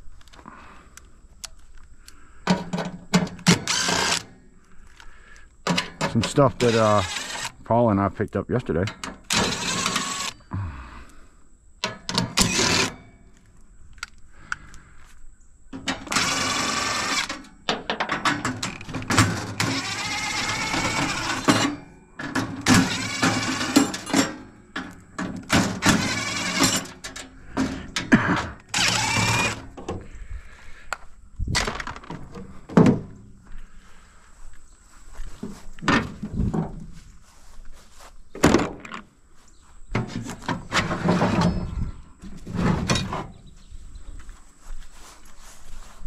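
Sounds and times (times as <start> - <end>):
metal knocks and clanks: 5.7 - 6.6, 17.7 - 19.8, 39.9 - 43.4.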